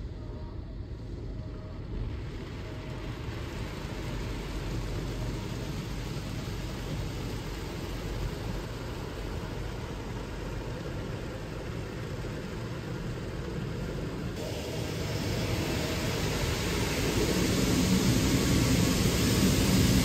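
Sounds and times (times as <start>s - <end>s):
water and foam rushing over car: 14.5s - 20.0s.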